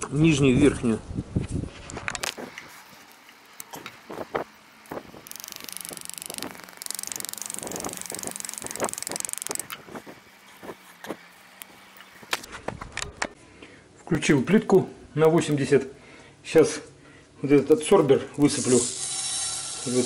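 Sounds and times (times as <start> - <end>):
beads trickling into plastic bowl: 5.2 - 10.2.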